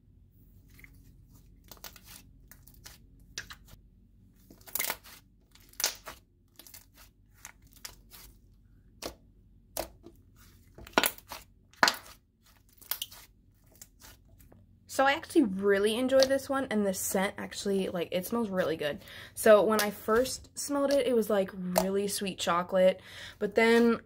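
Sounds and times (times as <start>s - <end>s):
slime crackling and snapping: 4.5s - 8.2s.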